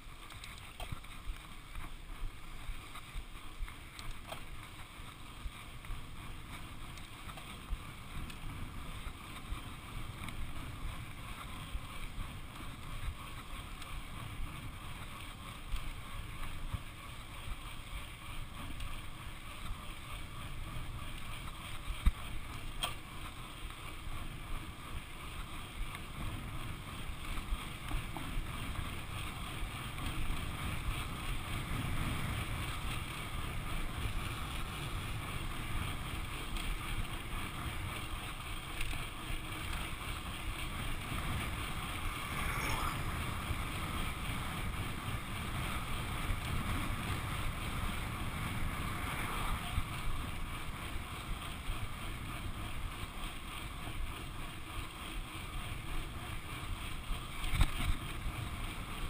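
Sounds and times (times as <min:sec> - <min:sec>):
bike rattles and clicks: 0:00.0 - 0:59.0
bike tyre rumble on tarmac: 0:00.0 - 0:59.0
wind buffeting microphone: 0:25.5 - 0:52.7.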